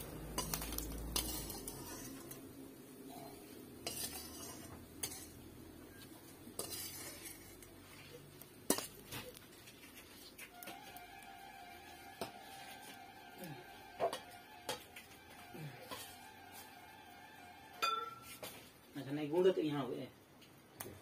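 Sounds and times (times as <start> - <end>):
hot oil sizzling: 0.0 - 18.9
metal ladle clinking on cookware: 17.8 - 18.4.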